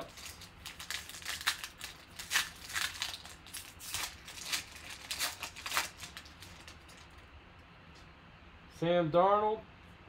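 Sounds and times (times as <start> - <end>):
foil wrapper crinkling: 0.0 - 7.3.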